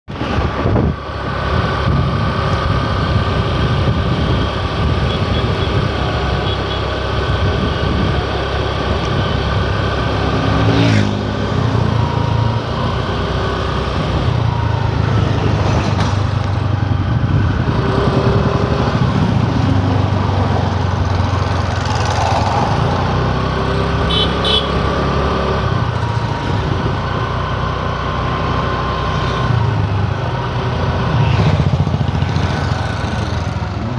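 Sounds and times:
road and traffic noise: 0:00.0 - 0:33.9.

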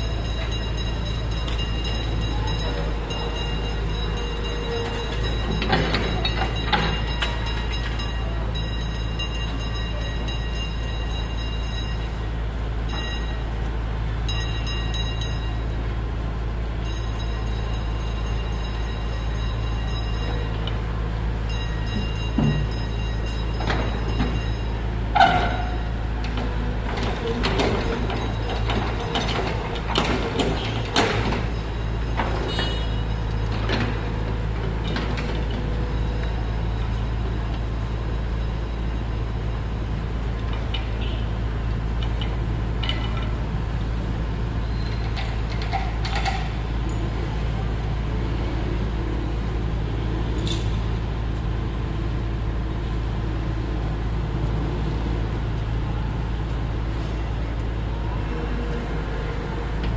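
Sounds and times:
excavator diesel engine running: 0:00.0 - 0:59.9
knocks and clatter: 0:25.2 - 0:35.7.

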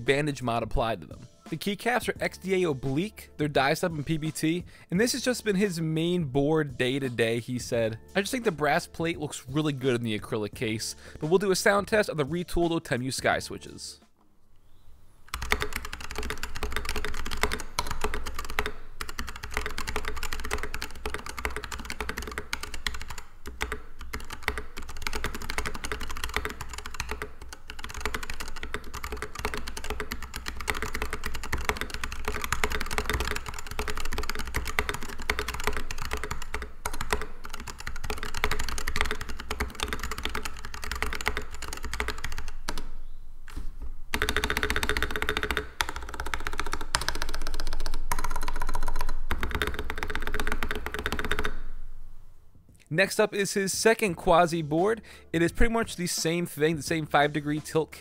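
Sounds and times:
fast typing on keyboard: 0:15.3 - 0:42.9, 0:44.1 - 0:51.7.

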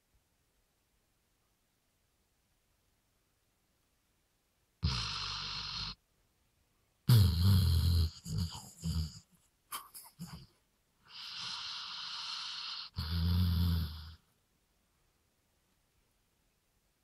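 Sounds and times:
dog snoring: 0:04.8 - 0:06.0, 0:07.1 - 0:09.4, 0:11.1 - 0:14.2
wheezy hissing breaths: 0:11.0 - 0:14.2.

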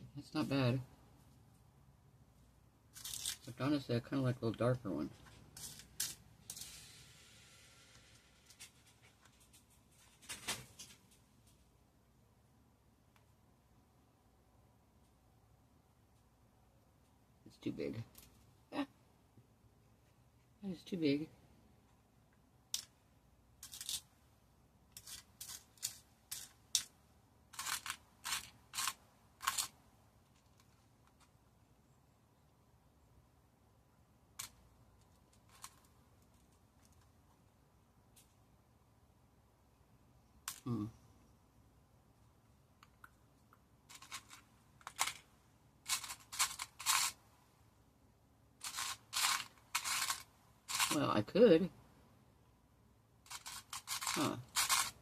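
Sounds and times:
gems clicking and rustling: 0:02.9 - 0:03.5, 0:05.2 - 0:07.3, 0:23.6 - 0:24.1, 0:24.9 - 0:31.3, 0:34.4 - 0:37.1, 0:43.9 - 0:47.2, 0:48.6 - 0:51.0, 0:53.3 - 0:55.0.

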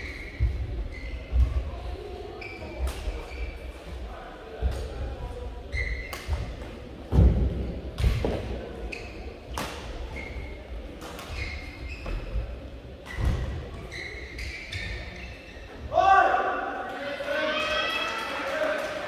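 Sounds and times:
shoes squeaking on court: 0:00.0 - 0:01.6, 0:02.3 - 0:03.9, 0:05.6 - 0:06.6, 0:08.8 - 0:15.8
rackets striking shuttlecock: 0:09.5 - 0:09.9.

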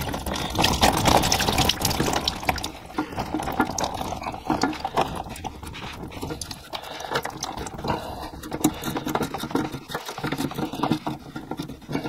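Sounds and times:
water draining and trickling: 0:00.0 - 0:09.6.

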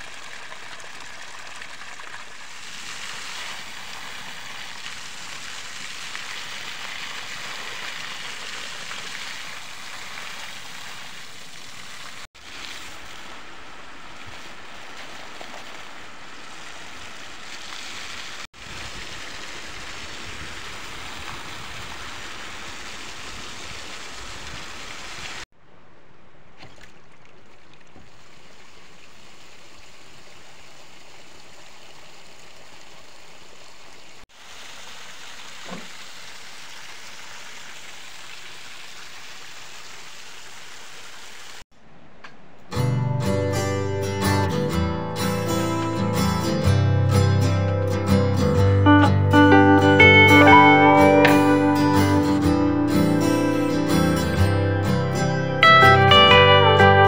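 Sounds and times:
water gushing from a hose: 0:00.0 - 0:25.4, 0:27.4 - 0:41.6.

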